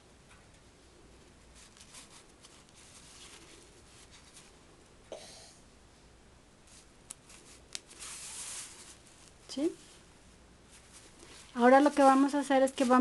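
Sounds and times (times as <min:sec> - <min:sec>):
fabric rustling: 0:01.1 - 0:04.7, 0:06.6 - 0:13.0.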